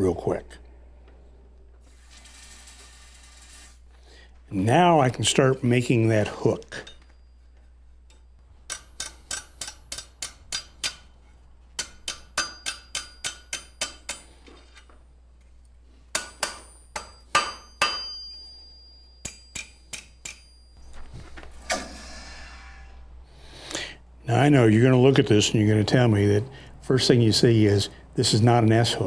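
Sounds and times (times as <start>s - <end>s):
hammer ringing on anvil: 8.2s - 11.1s, 11.8s - 14.4s, 16.1s - 20.8s.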